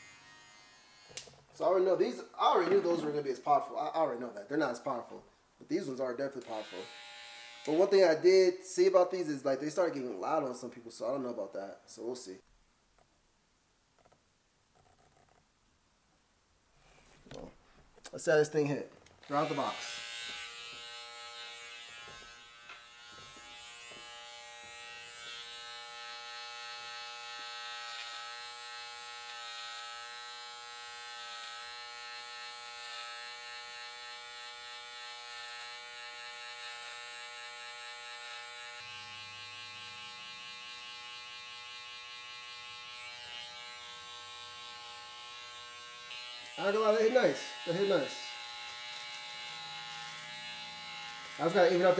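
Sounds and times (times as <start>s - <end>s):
hair trimmer humming: 0.0s - 1.4s, 6.4s - 8.0s, 19.2s - 51.9s.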